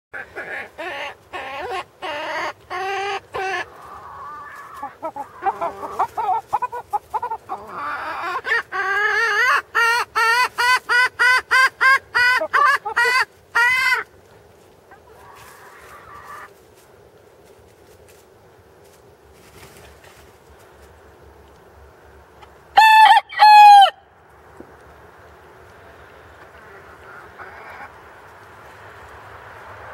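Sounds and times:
chickens clucking: 0.2 - 22.8, 24.2 - 29.9.

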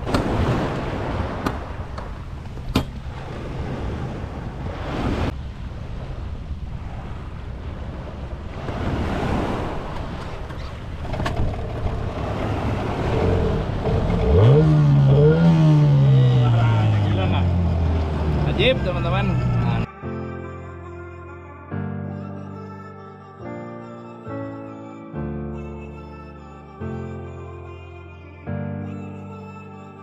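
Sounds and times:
waves splashing around boat: 0.0 - 19.9
outboard motor running: 11.0 - 19.8.

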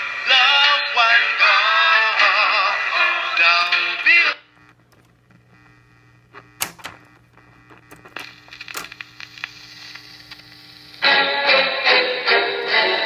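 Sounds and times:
music with singing: 0.0 - 4.5, 11.0 - 13.0
amplifier hum: 3.6 - 12.2
record changer clicks and clunks: 4.5 - 11.0.

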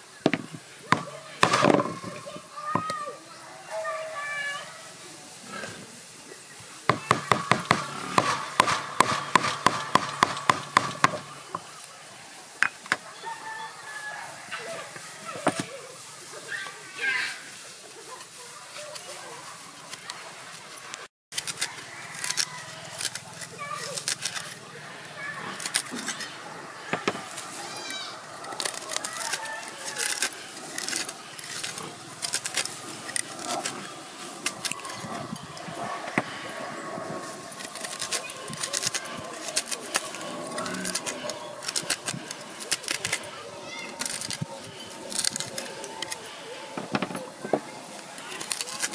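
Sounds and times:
cleaver scraping fruit pulp: 0.3 - 3.0, 6.9 - 11.7, 21.3 - 36.5, 37.2 - 48.9
cleaver chopping on wooden block: 6.9 - 11.6.

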